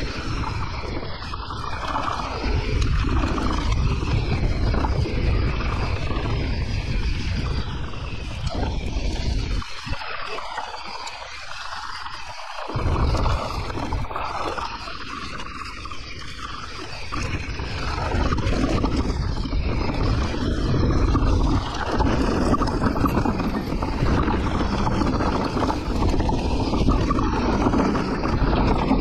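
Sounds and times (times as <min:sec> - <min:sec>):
bike tyres rattling over rough trail: 0:00.0 - 0:29.0
wind on microphone: 0:00.0 - 0:29.0.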